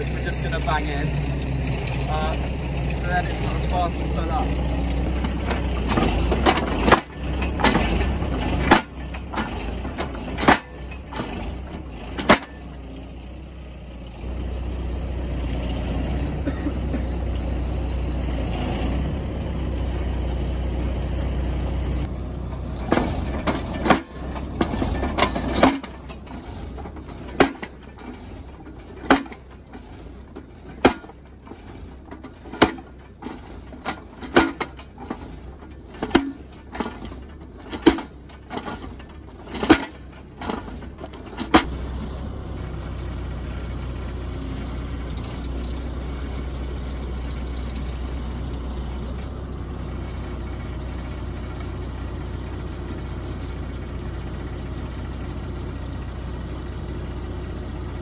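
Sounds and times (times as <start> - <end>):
forklift engine running: 0.0 - 58.0
post driver hammering: 5.1 - 12.8, 22.5 - 41.7.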